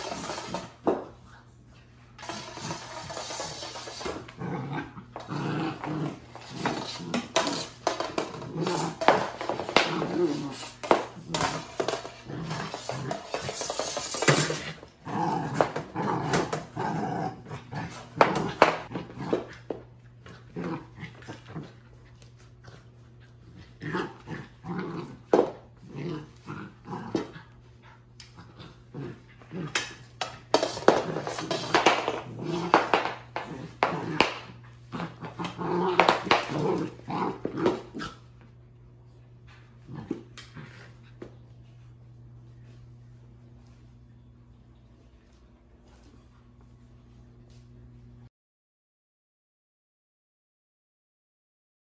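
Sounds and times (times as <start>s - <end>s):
broom knocking and scraping on floor: 0.0s - 1.2s, 2.2s - 4.4s, 5.2s - 16.8s, 30.0s - 34.5s
puppy growling: 2.2s - 21.9s, 22.6s - 38.4s.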